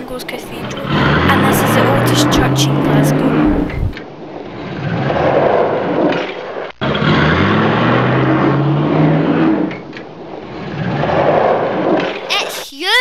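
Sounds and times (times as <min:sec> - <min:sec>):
vehicle engine accelerating: 0:00.0 - 0:06.1, 0:06.8 - 0:12.1
loud rushing noise: 0:00.5 - 0:04.0.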